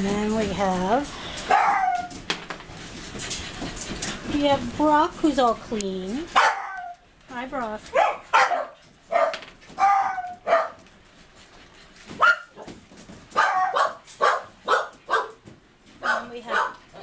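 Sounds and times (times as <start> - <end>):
dogs barking: 1.4 - 2.2, 6.3 - 7.0, 7.9 - 10.8, 12.1 - 17.0.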